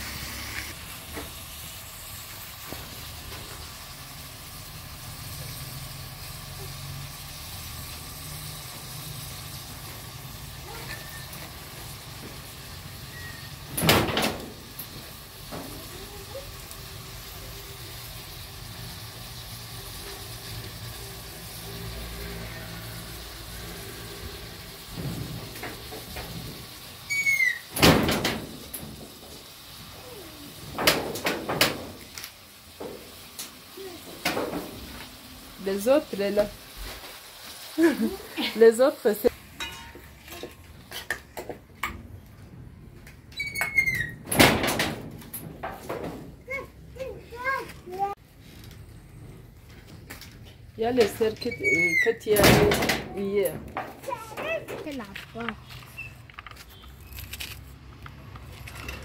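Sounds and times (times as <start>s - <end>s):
short squeaky call: 10.7s - 11.3s, 13.1s - 13.6s, 27.1s - 27.7s, 51.5s - 52.2s
cooking utensils knocking and clattering: 30.8s - 32.1s, 39.5s - 42.1s.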